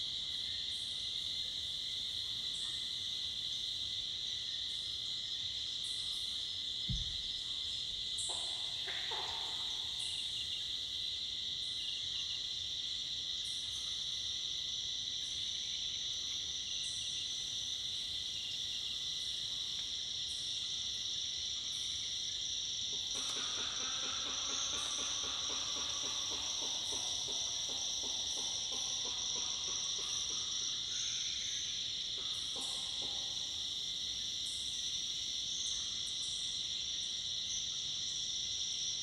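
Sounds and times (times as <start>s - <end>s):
insects buzzing: 0.0s - 39.0s
brief low thump: 6.8s - 7.5s.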